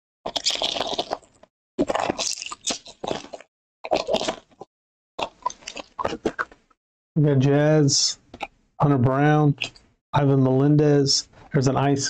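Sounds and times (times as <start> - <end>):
foil wrapper crinkling and tearing: 0.3 - 4.6.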